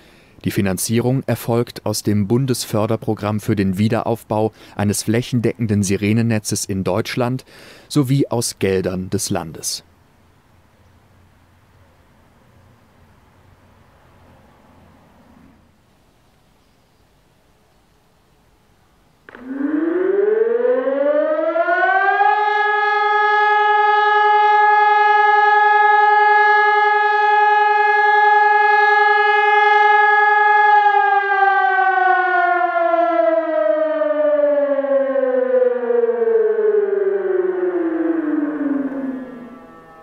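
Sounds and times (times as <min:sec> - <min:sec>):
electronic siren tone: 0:19.3 - 0:40.0.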